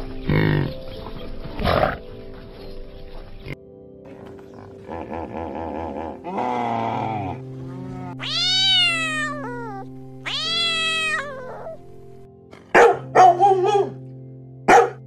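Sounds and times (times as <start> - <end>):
background music: 0.0 - 15.0
wet cat meowing: 8.1 - 11.8.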